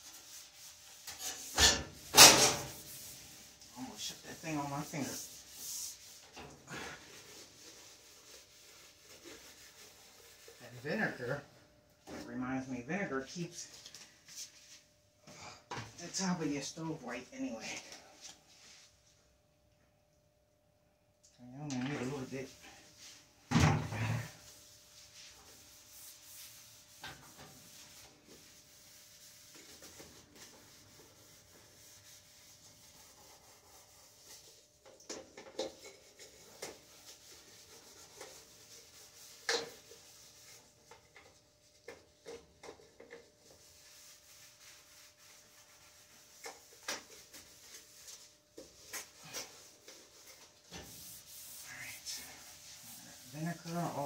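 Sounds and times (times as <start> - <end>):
scouring pad scrubbing stove top: 0.0 - 11.4, 21.9 - 54.0.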